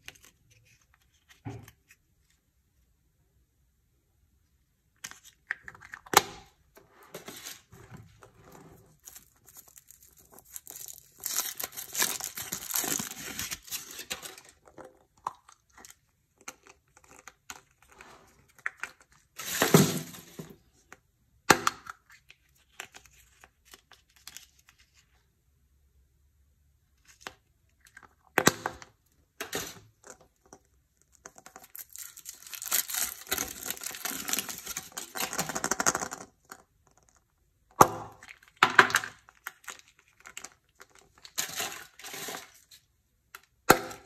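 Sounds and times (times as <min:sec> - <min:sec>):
plastic capsule handling: 0:05.0 - 0:08.2
foil wrapper crinkling and tearing: 0:08.9 - 0:14.6, 0:31.5 - 0:35.5.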